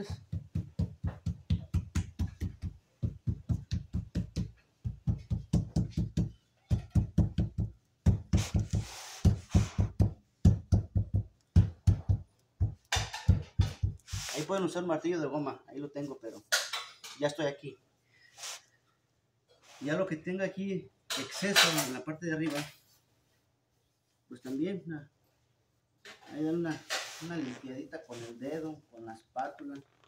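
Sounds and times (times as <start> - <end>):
hand knocking on stone panel: 0.2 - 14.1.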